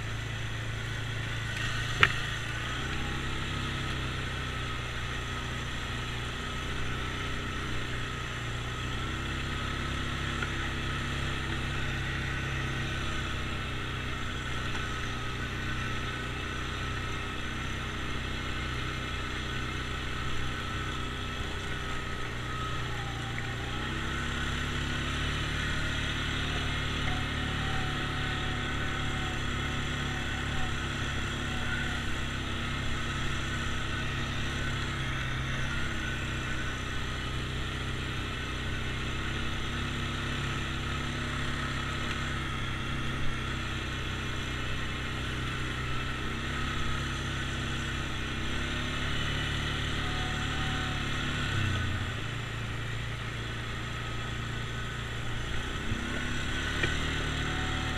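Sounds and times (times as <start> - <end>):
atv engine running: 0.0 - 57.9.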